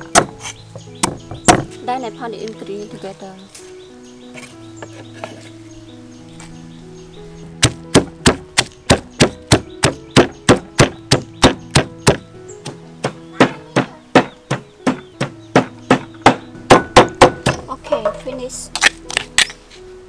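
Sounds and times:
stone pestle pounding in mortar: 0.0s - 1.7s, 7.6s - 18.2s.

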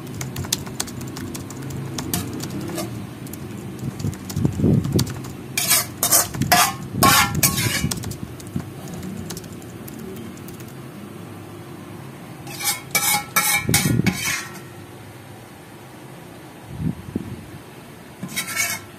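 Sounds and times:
metal ladle scraping a pan: 5.6s - 7.9s, 12.5s - 14.7s, 18.2s - 18.9s.

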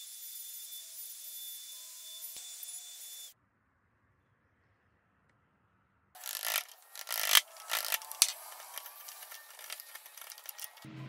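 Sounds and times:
chisel scraping wood: 6.2s - 10.9s.

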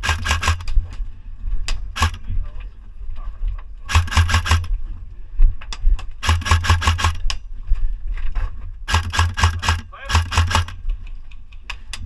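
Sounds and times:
airsoft rifle full-auto bursts: 0.0s - 0.8s, 2.0s - 2.3s, 3.9s - 4.7s, 6.2s - 7.3s, 8.9s - 10.8s
sharp single clicks: 8.9s - 10.8s.

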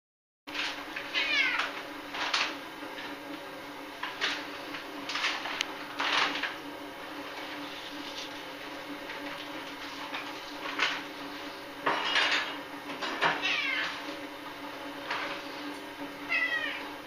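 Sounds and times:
cat meowing: 1.1s - 1.7s, 13.4s - 14.0s, 16.3s - 16.9s.

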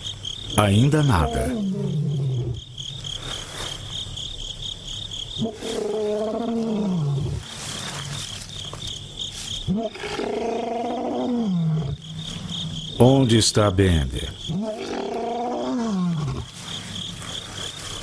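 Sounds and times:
crickets chirping: 0.0s - 18.0s
lion roaring: 0.8s - 2.6s, 5.4s - 7.5s, 9.7s - 13.0s, 14.5s - 16.6s.

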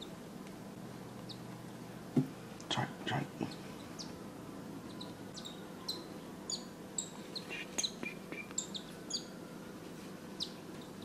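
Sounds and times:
cockatiels chirping: 4.9s - 9.3s.

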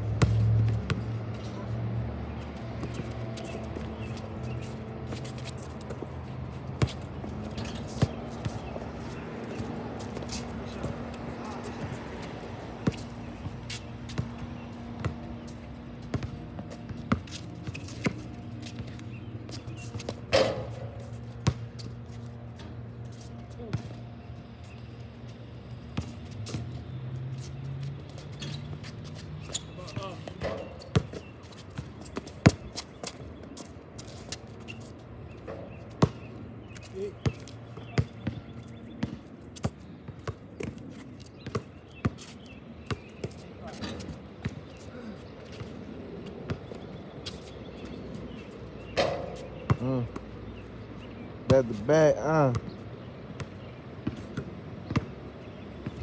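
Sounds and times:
basketball bouncing on hard court: 0.2s - 1.1s, 12.8s - 15.4s, 16.0s - 21.9s, 29.4s - 33.2s, 35.5s - 40.8s, 41.4s - 42.2s, 42.8s - 44.7s, 49.0s - 50.3s, 52.4s - 56.0s.

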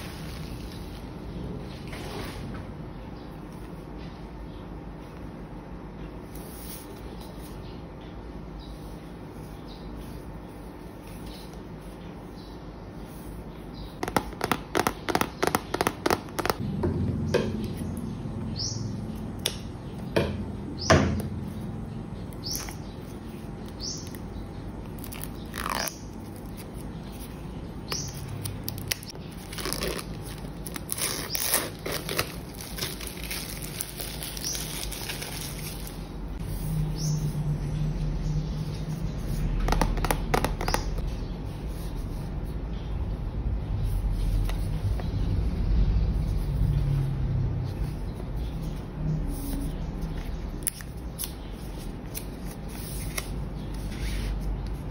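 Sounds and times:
plastic wrap crackling and tearing: 28.4s - 36.1s.

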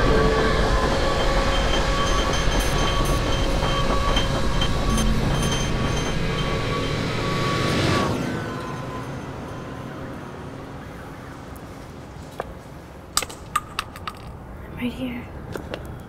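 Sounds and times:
metallic wheel squeals: 0.0s - 10.6s
train rumbling past: 0.0s - 12.2s.

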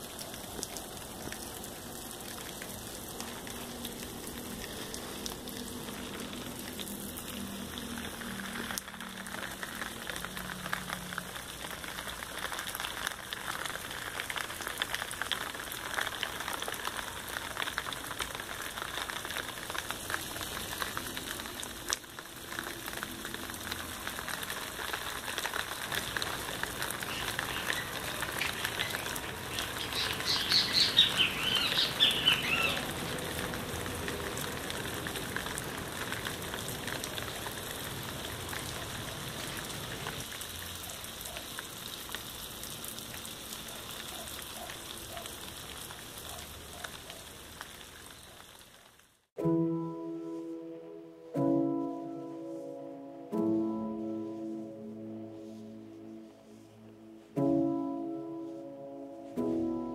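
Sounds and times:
water falling on foliage: 0.0s - 49.4s
small bird chirping: 27.0s - 32.9s.

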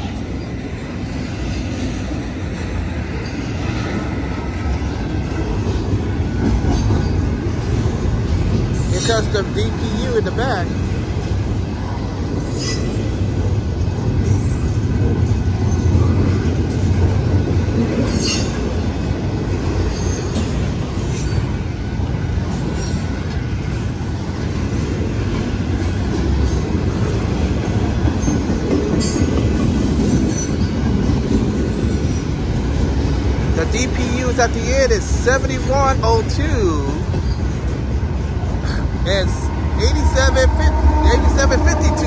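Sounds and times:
train wheels rumbling on rail: 0.0s - 42.0s.

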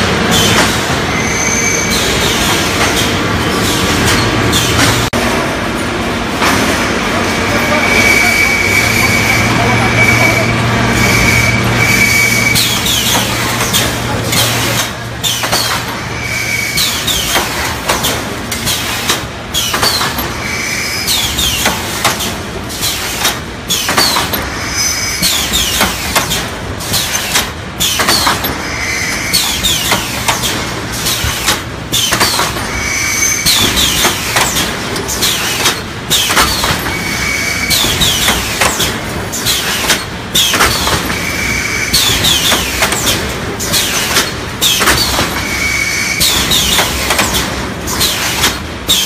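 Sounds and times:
welding machine clicks and clanks: 0.0s - 1.0s, 1.9s - 5.2s, 12.6s - 16.0s, 16.8s - 24.5s, 25.2s - 32.8s, 33.4s - 49.0s
short high squeal: 1.1s - 2.1s, 7.5s - 13.2s, 32.7s - 33.6s, 45.4s - 46.4s.

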